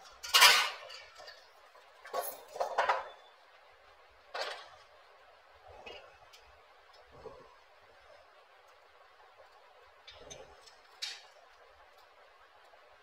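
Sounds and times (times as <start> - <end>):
metal fan blades clattering: 0.0 - 3.2, 10.0 - 11.6.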